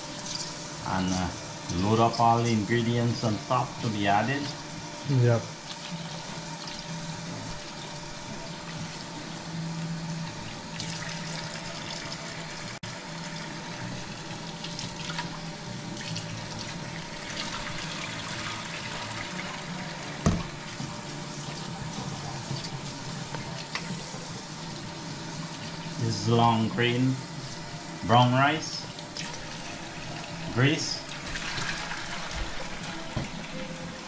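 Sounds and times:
faucet running into metal bowl: 0:10.3 - 0:20.6, 0:28.8 - 0:33.7
rice being washed by hand: 0:29.0 - 0:33.5.

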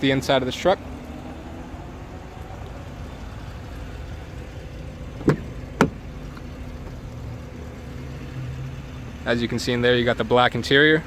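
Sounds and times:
car door handle and latch clicks: 0:05.2 - 0:06.0.

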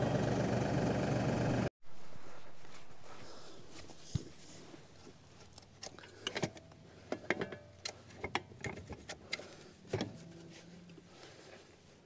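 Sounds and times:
metal clicks and clanks: 0:05.6 - 0:10.3.

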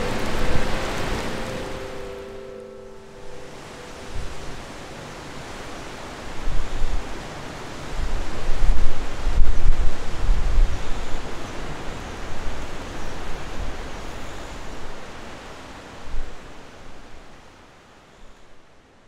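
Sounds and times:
wind rushing hiss: 0:00.0 - 0:17.2
wind buffeting microphone: 0:03.1 - 0:15.1.

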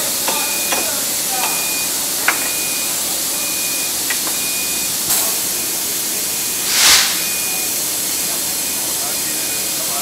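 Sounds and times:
compressed air hissing: 0:06.5 - 0:07.9
burst of air venting: 0:06.5 - 0:08.0
faint high beep: 0:06.6 - 0:07.8.

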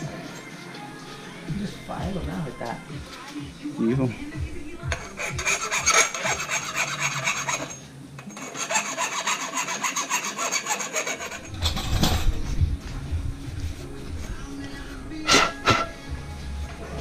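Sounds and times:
hand file rasping on metal: 0:04.9 - 0:11.6.

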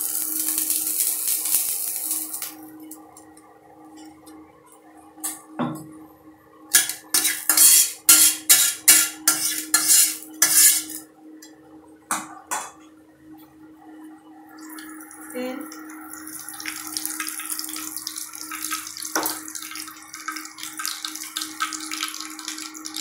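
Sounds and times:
scraping strokes in a pan: 0:06.8 - 0:11.0.

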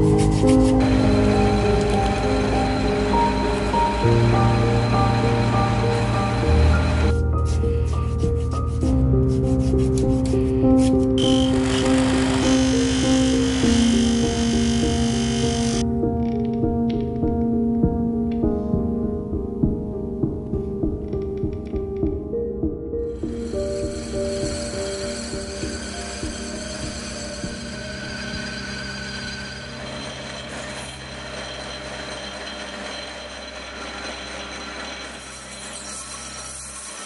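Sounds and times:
background music held tones: 0:00.0 - 0:30.1
metal lathe humming: 0:00.3 - 0:07.1, 0:11.2 - 0:15.8, 0:23.3 - 0:37.0.

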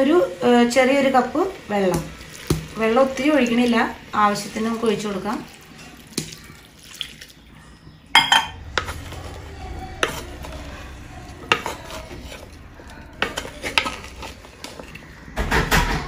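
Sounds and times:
spoon clinking and scraping clay pot: 0:08.2 - 0:15.2.

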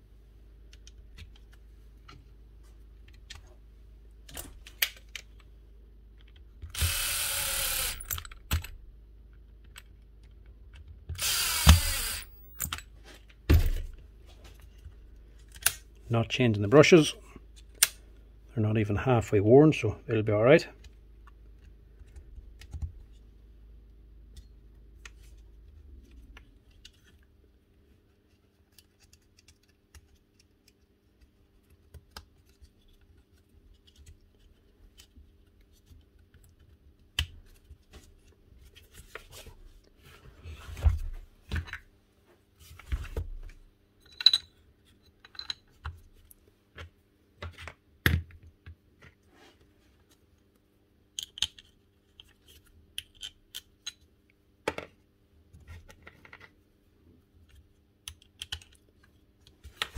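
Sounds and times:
tools and metal parts clicking: 0:44.0 - 0:44.5.

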